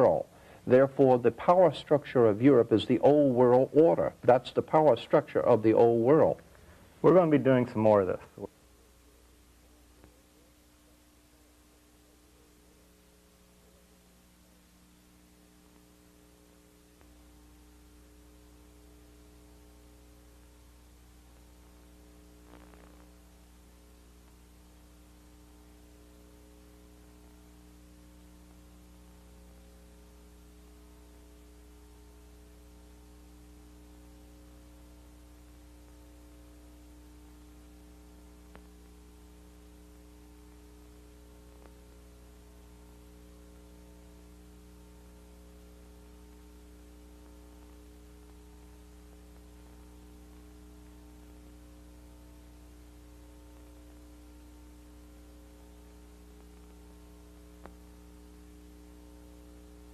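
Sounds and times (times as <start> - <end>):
electrical mains hum: 0.0 - 59.9
faint hiss: 0.0 - 59.9.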